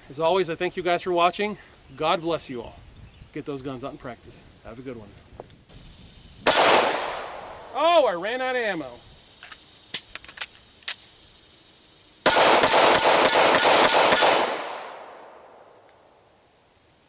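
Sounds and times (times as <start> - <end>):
rapid gunfire: 6.5 - 7.2, 12.2 - 15.1.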